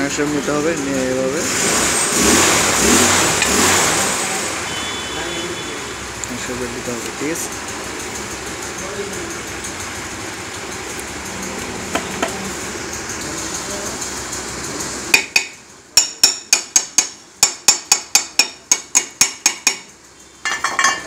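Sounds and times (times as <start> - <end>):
steady background noise: 0.0 - 21.0
hammer tapping on metal: 11.9 - 12.4, 15.1 - 21.0.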